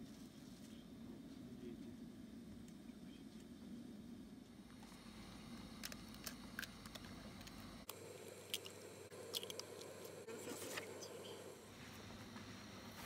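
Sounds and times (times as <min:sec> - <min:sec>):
eggshells cracking: 0:05.8 - 0:10.2.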